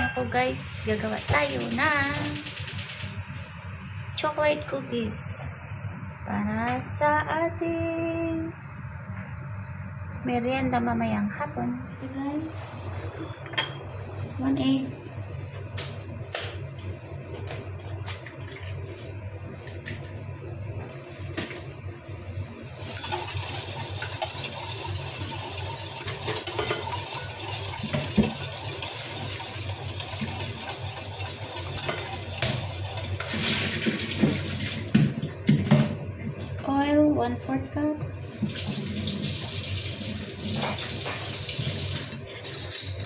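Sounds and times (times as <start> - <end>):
whisk beating in metal bowl: 1.0 - 3.2, 22.8 - 34.4.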